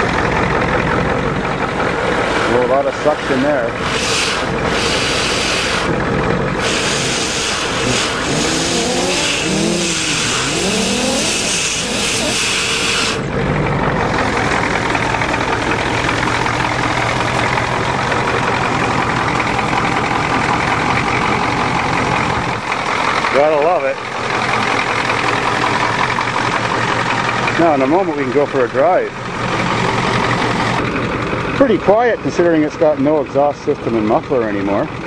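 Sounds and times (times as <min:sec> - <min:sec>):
diesel truck engine running: 0:00.0 - 0:35.0.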